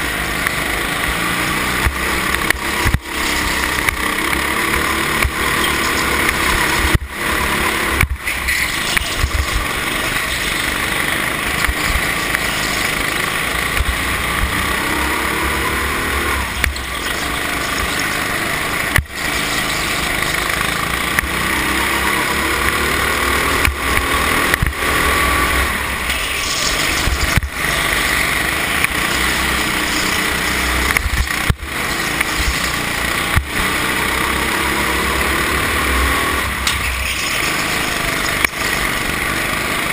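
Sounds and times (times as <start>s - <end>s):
go-kart engine revving: 0.0s - 39.9s.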